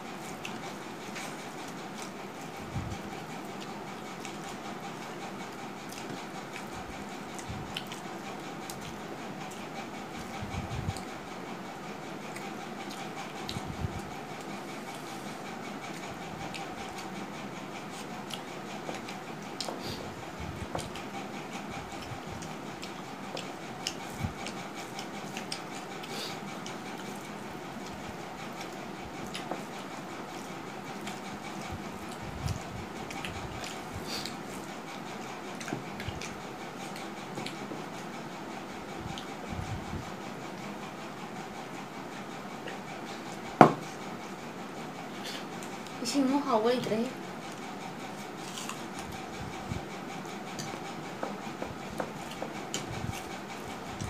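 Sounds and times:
fingers working rice on plates: 0.0s - 46.2s, 47.1s - 54.0s
chewing: 0.2s - 11.1s, 12.2s - 38.2s, 47.4s - 49.4s, 50.0s - 54.0s
chewing and mouth smacking: 7.4s - 9.6s, 21.9s - 28.0s, 28.6s - 29.8s, 30.4s - 38.0s, 47.4s - 49.2s.

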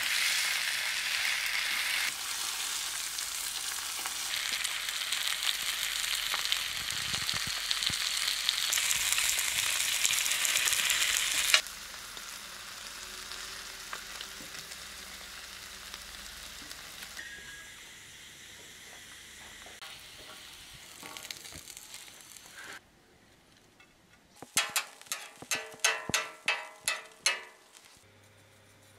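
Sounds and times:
meat sizzling in a pan: 0.0s - 22.8s.

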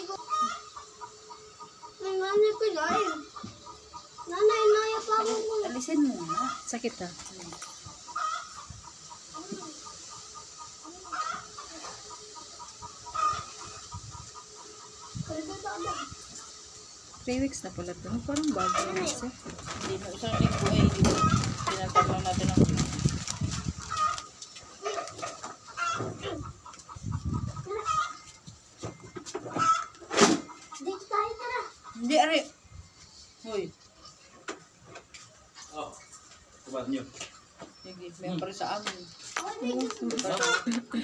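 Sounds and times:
chickens clucking: 0.0s - 41.0s
loud chicken call: 0.2s - 0.8s, 11.0s - 14.2s, 27.5s - 28.3s.

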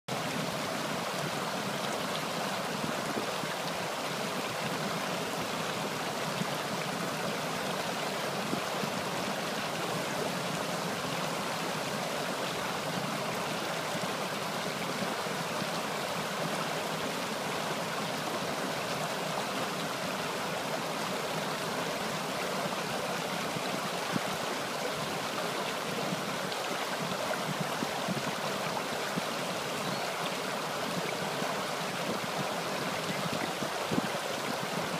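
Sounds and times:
water rushing over stones: 0.1s - 34.9s.

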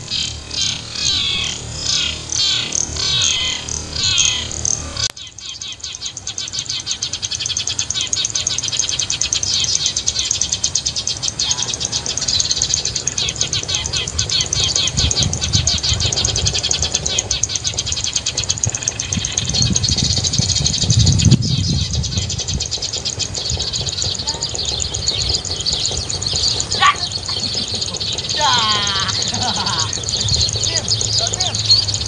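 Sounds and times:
sparrows chirping: 0.0s - 32.0s
low rumble: 13.2s - 32.0s.

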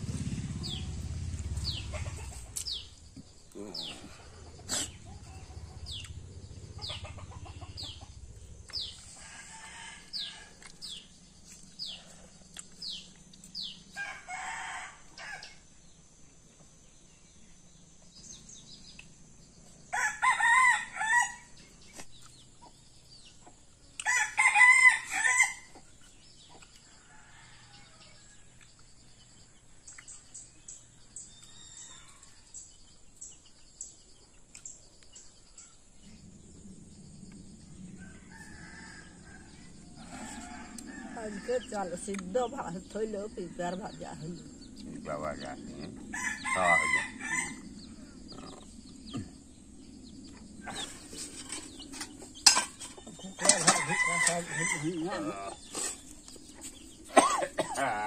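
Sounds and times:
small birds chirping: 0.0s - 24.5s, 25.1s - 58.0s
rooster crowing: 8.8s - 11.0s, 13.9s - 15.6s, 19.9s - 21.6s, 24.0s - 25.8s, 26.9s - 28.6s, 31.4s - 32.6s, 37.9s - 43.7s, 45.4s - 48.6s, 52.0s - 56.0s.

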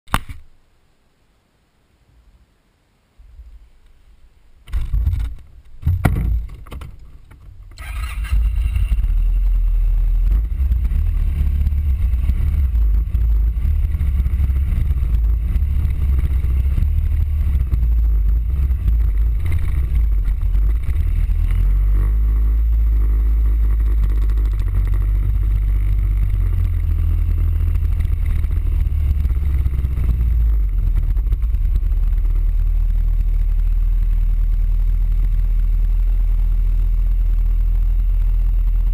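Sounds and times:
knocks: 4.7s - 7.5s
scooter engine and wind rumble: 4.7s - 38.9s.

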